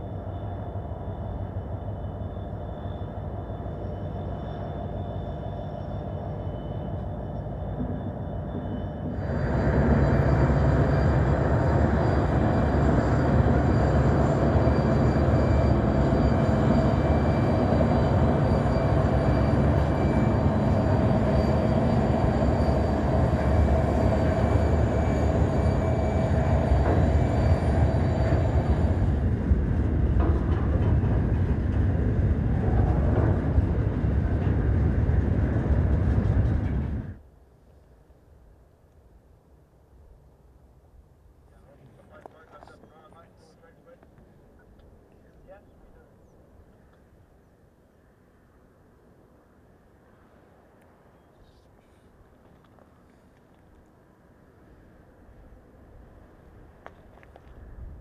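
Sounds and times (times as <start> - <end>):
locomotive engines whining: 0.0 - 37.2
train wheels rumbling on rails: 0.0 - 37.3.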